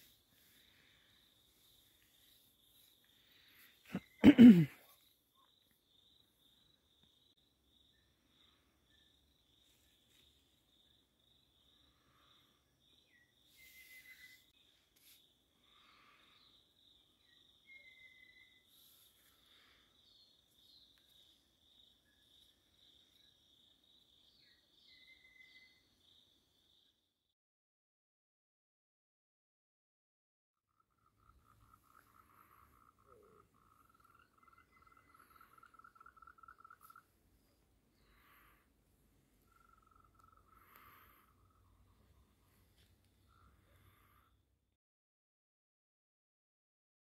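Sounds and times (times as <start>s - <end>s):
bird chirps: 0.5s - 15.2s, 16.2s - 26.9s, 30.7s - 38.5s, 39.3s - 44.0s
whistled bird note: 13.5s - 14.5s
insects trilling: 39.4s - 42.0s.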